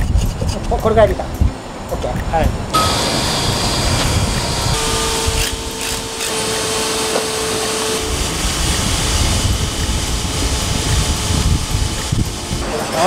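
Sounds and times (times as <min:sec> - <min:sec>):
cordless vacuum running: 0:02.8 - 0:12.7.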